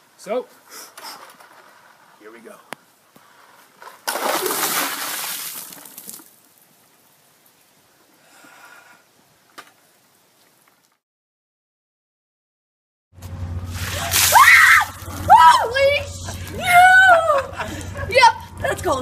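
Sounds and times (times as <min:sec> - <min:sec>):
splashing water with clattering ice: 0:03.8 - 0:06.4, 0:13.7 - 0:15.3.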